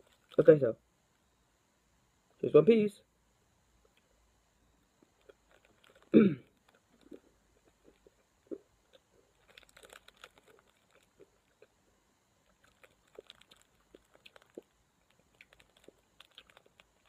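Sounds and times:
hard candy crunching: 0.0s - 0.4s, 5.0s - 11.8s, 12.4s - 17.0s.

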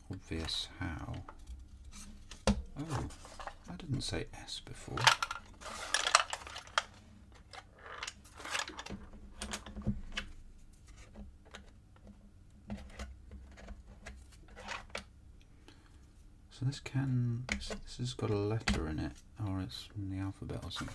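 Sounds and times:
wooden pieces clicking and sliding: 4.8s - 11.7s.

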